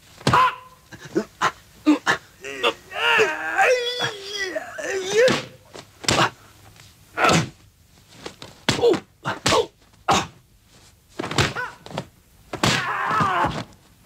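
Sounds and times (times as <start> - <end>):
fighters grunting and shouting: 0.3 - 6.4, 7.2 - 7.6, 12.6 - 13.7
punch and kick thwacks: 5.2 - 6.4, 8.6 - 9.7, 11.2 - 13.7.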